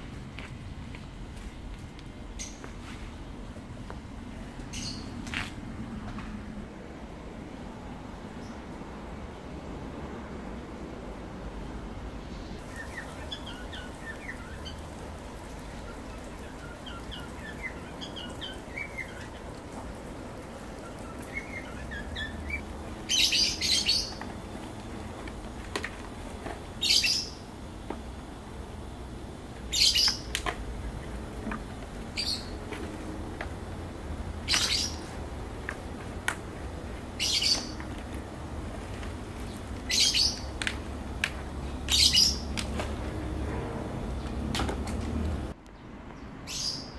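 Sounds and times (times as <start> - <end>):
soft high bird twittering: 4.7 - 5.2, 12.4 - 24.3, 26.8 - 27.4, 29.7 - 30.3, 32.2 - 32.6, 34.4 - 35.1, 37.2 - 37.9, 39.5 - 40.5, 41.7 - 42.5
loud harsh bird calls: 12.6 - 24.3, 37.2 - 37.8.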